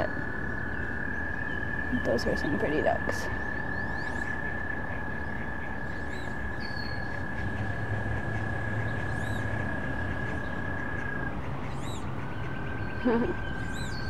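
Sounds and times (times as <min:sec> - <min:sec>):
frogs trilling: 0:00.0 - 0:14.0
wood ducks squeaky calls: 0:03.9 - 0:14.0.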